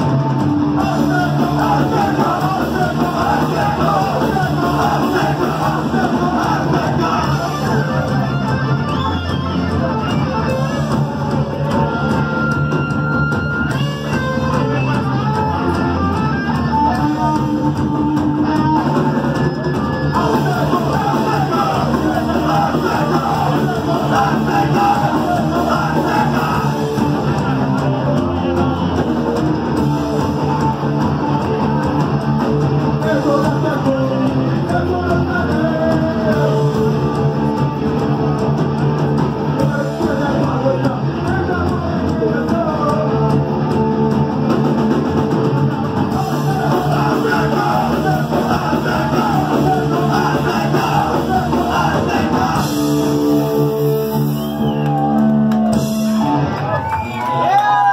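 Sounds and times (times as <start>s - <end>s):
loud electric guitars: 0.0s - 57.9s
punk rock band playing live: 0.0s - 57.9s.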